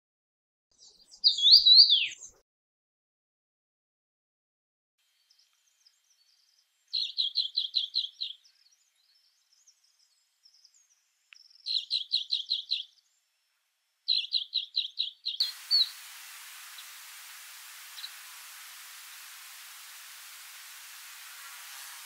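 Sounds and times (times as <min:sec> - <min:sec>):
bird high chirping notes: 0:00.8 - 0:02.4, 0:14.1 - 0:22.0
faint bird twittering: 0:00.8 - 0:02.4, 0:05.2 - 0:13.1, 0:14.1 - 0:22.0
steady hiss: 0:15.4 - 0:22.0.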